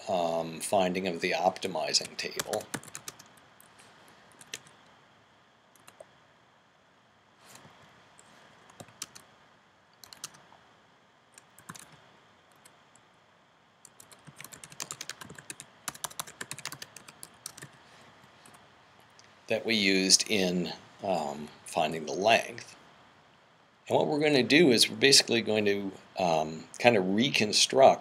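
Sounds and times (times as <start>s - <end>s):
computer keyboard typing: 2.0s - 3.4s, 4.3s - 4.7s, 5.8s - 6.1s, 8.7s - 9.2s, 10.0s - 10.4s, 11.4s - 12.8s, 13.8s - 17.8s.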